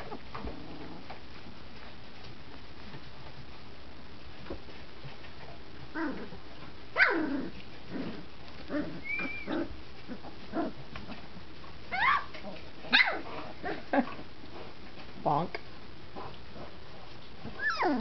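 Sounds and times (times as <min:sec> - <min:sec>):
puppies yelping: 0:08.8 - 0:10.2, 0:11.9 - 0:13.2, 0:17.6 - 0:18.0.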